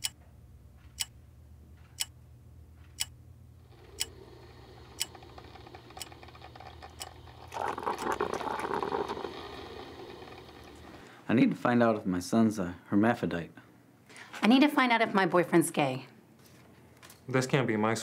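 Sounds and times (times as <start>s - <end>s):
wall clock ticking: 0.0s - 0.2s, 0.9s - 1.2s, 1.9s - 2.2s, 2.9s - 3.2s, 3.8s - 7.5s
rough noise: 3.6s - 11.2s.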